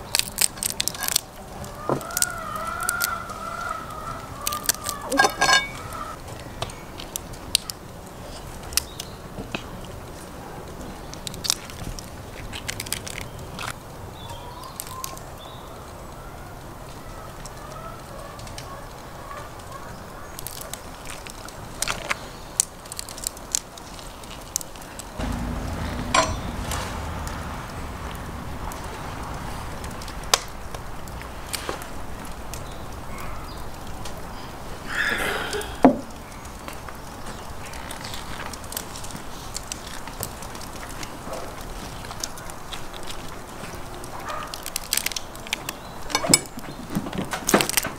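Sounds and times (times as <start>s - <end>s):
shells cracking and crunching: 0.0s - 6.2s, 11.2s - 15.2s, 20.3s - 27.3s, 37.3s - 46.6s
short breathy exhale: 34.9s - 35.9s.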